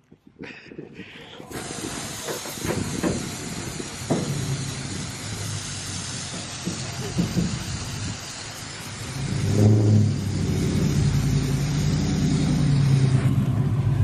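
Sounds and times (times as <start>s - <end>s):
water jet spraying on concrete: 1.4s - 14.0s
low rumble: 3.2s - 14.0s.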